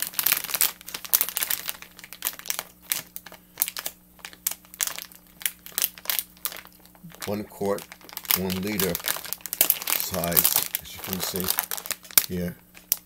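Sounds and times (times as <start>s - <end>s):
plastic packaging crinkling: 0.0s - 13.0s.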